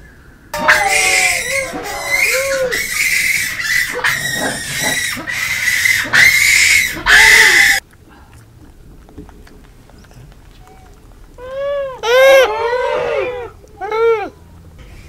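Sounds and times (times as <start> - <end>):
monkey harsh screeches: 0.6 - 7.8
monkeys cooing: 0.6 - 7.8.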